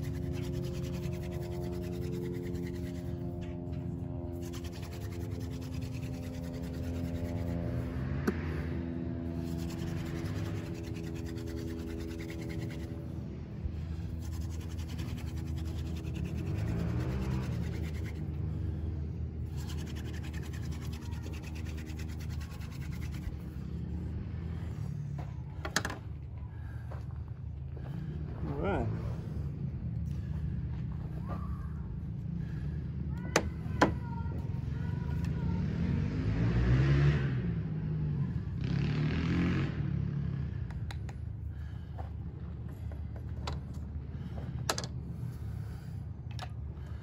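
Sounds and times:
hand drill spindle rubbing: 0:00.0 - 0:08.0, 0:09.4 - 0:13.2, 0:13.9 - 0:18.6, 0:19.4 - 0:23.6
steady droning hum: 0:00.0 - 0:35.3.

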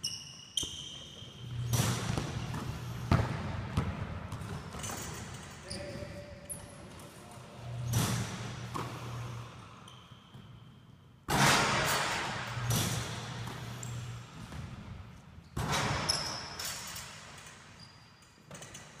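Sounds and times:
basketballs bouncing in a gym: 0:00.0 - 0:10.6, 0:11.2 - 0:16.6
loud ringing ball impacts: 0:11.3 - 0:13.7.

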